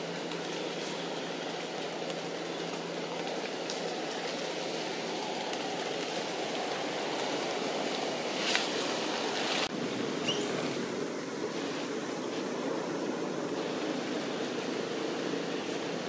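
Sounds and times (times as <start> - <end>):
short high chirp: 10.2 - 10.6.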